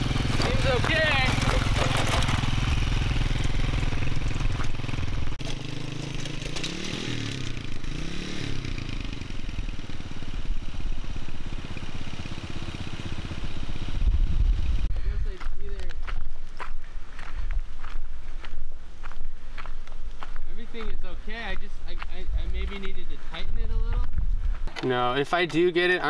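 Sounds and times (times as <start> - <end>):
small motorcycle engine revving: 0.0 - 14.9.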